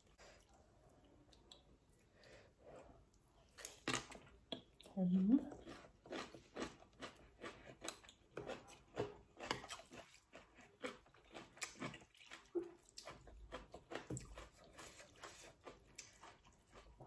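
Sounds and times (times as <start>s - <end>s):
person chewing wetly: 5.5s - 17.0s.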